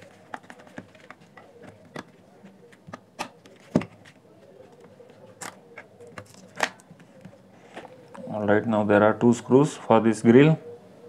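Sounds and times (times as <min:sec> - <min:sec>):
plastic speaker parts clicking: 0:00.0 - 0:07.0.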